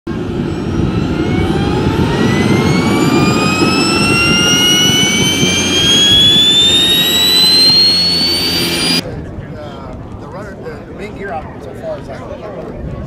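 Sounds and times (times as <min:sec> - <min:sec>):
low rumble of exhaust: 0:00.1 - 0:09.0
turbojet engine whine: 0:00.1 - 0:09.0.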